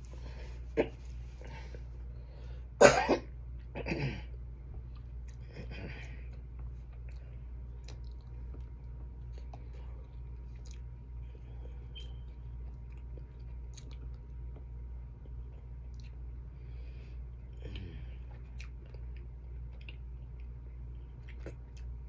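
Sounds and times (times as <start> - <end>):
person chewing: 4.8 - 16.4, 17.4 - 22.0.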